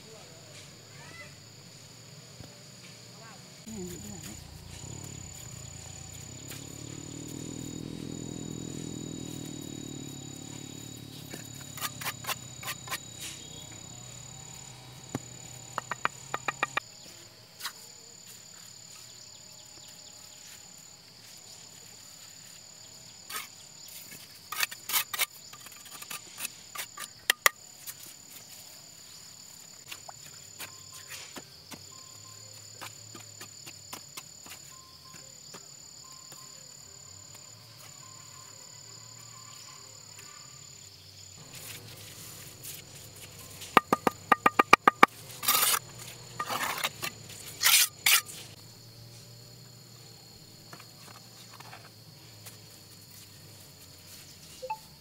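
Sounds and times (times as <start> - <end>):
insects buzzing and trilling: 0.0 - 55.0
low rumble: 4.1 - 11.7
sharp knocks and taps: 15.1 - 16.8, 43.7 - 45.2.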